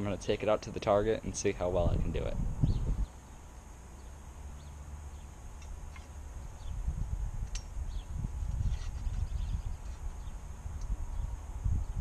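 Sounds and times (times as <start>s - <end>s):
wind rumble on microphone: 1.4s - 3.1s, 6.3s - 12.0s
faint bird chirps: 7.9s - 10.5s.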